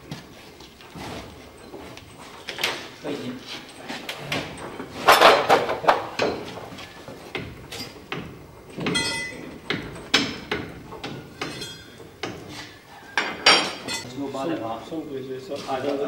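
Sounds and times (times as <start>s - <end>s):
metal clanks and knocks: 4.1s - 14.1s
metallic ringing rattle: 8.8s - 10.5s, 11.2s - 12.2s, 13.2s - 14.1s.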